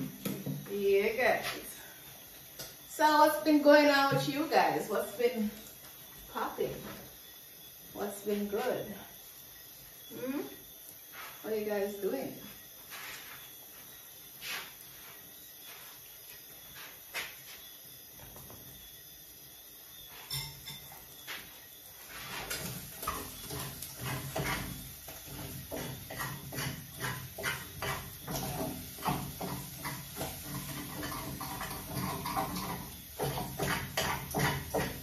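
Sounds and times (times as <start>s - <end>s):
metal utensil scraping metal pot: 22.3s - 35.0s.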